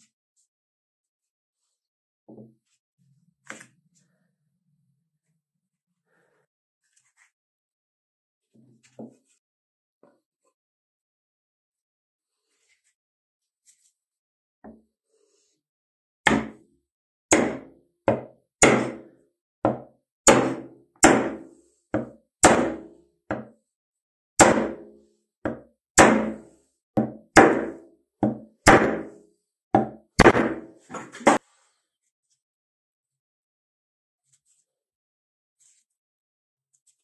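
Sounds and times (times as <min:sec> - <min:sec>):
axe head knocked onto handle: 0:27.0 - 0:29.1, 0:29.8 - 0:30.7.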